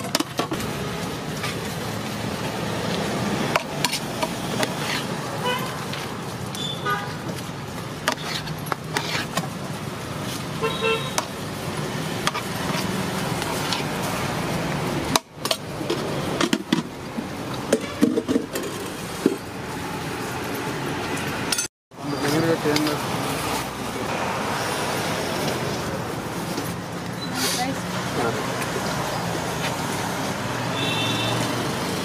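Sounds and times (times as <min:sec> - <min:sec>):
traffic noise: 0:00.0 - 0:32.0
vehicle horn toot: 0:05.4 - 0:05.8, 0:06.6 - 0:07.1, 0:10.6 - 0:11.2, 0:30.7 - 0:31.5.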